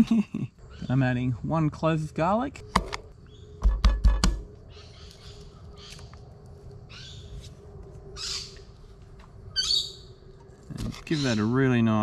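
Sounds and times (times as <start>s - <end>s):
harsh bird calls: 4.6s - 6.2s, 6.9s - 7.5s, 8.1s - 8.8s, 9.4s - 12.0s.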